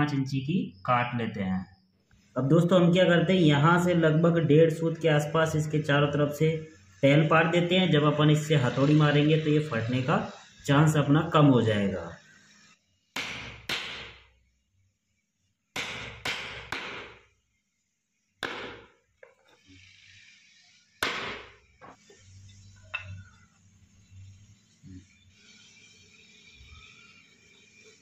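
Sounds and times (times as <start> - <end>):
sharp knocks on wood: 13.2 - 14.2, 15.8 - 17.2, 18.4 - 19.4, 21.0 - 22.0.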